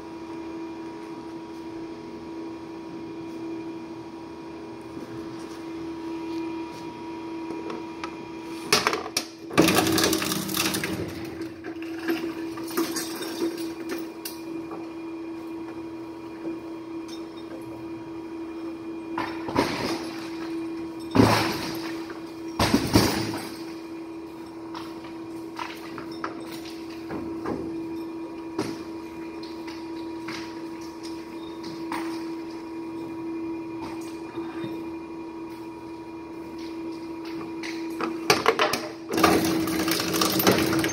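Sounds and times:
shredder humming: 2.0 - 17.1, 38.1 - 40.9.

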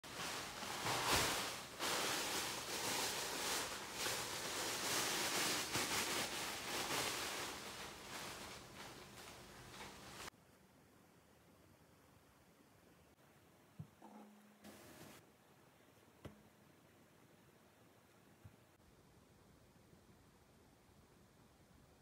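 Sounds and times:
plastic bags crinkling: 0.0 - 10.3.

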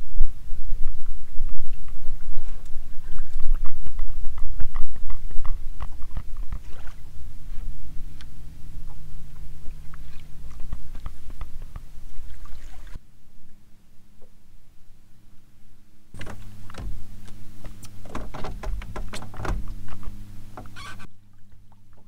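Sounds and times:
steady low rumble: 0.0 - 22.0
water lapping against hull: 0.7 - 13.0, 16.2 - 22.0
small knocks: 16.2 - 21.1.

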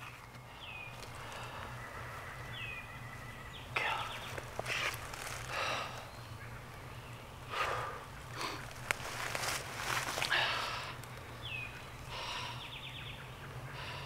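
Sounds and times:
rustling of leaf litter: 0.0 - 7.2, 8.2 - 12.0.

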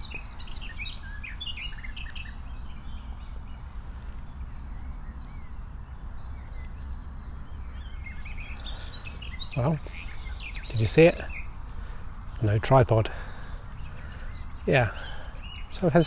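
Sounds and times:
songbirds chirping and trilling: 0.0 - 16.0.

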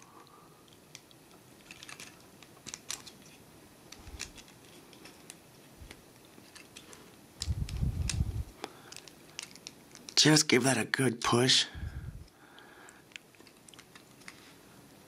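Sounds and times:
plastic parts clicking and scraping: 0.6 - 10.3, 12.9 - 14.6.

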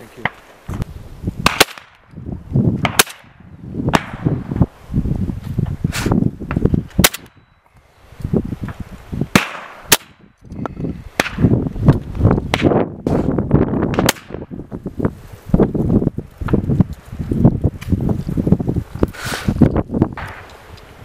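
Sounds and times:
shotgun shots: 1.4 - 2.0, 2.8 - 4.2, 9.3 - 10.2.

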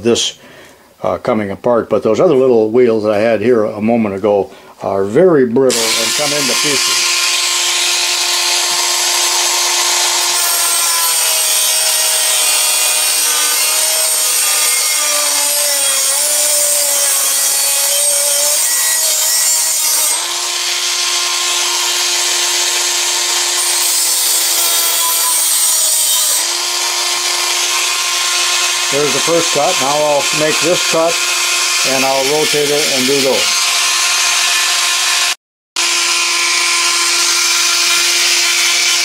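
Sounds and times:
abrasive disc grinding steel: 5.7 - 35.4.

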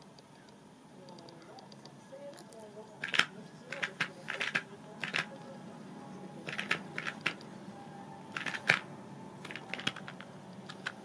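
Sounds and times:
cat batting paper toy: 6.4 - 7.4.

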